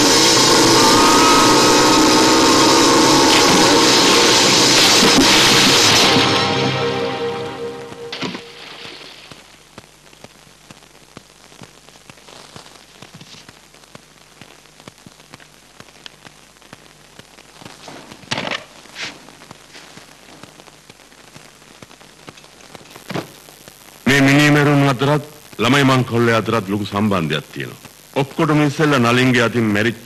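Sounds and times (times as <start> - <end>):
low hum: 0.0 - 9.0
film soundtrack hiss and crackle: 0.0 - 30.0.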